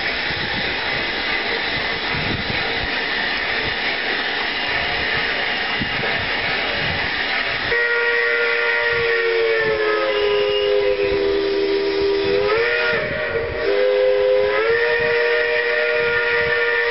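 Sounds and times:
steam locomotive hissing and running: 0.0 - 16.9
steam whistle blowing: 7.6 - 16.9.

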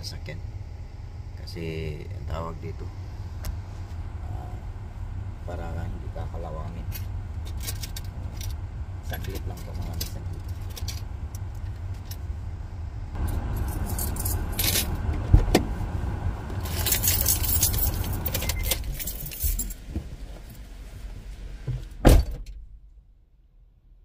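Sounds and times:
car engine idling: 0.0 - 20.4
metallic jingling and rattling: 6.8 - 12.2, 13.2 - 15.0, 16.6 - 19.9.

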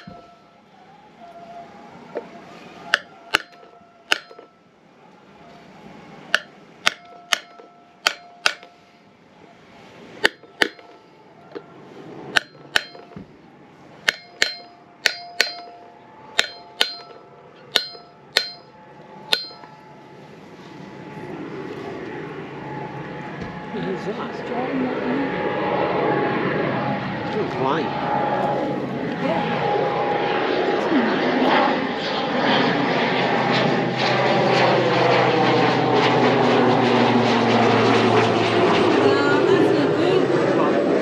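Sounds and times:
hammer striking metal: 0.0 - 0.6, 2.9 - 4.6, 6.3 - 8.9, 10.2 - 11.6, 12.3 - 13.2, 14.0 - 19.9.

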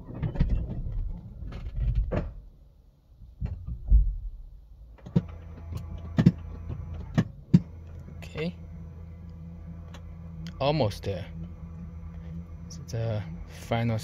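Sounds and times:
machinery rumbling and clunking: 0.0 - 14.0
heavy thud: 3.4 - 4.6
steady electric hum: 4.2 - 14.0.

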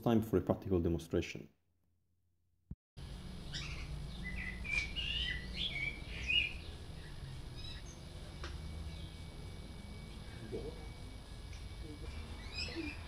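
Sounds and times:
birds chirping: 3.0 - 13.0.

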